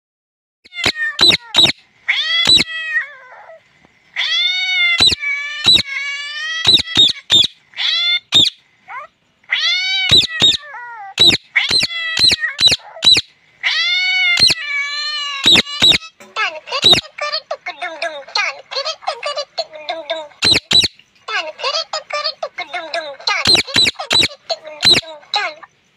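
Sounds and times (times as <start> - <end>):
parakeet calling: 0.7 - 3.5, 4.2 - 25.9
parakeet sharp clicks: 5.0 - 5.8, 11.2 - 13.2, 20.4 - 21.3, 23.5 - 25.0.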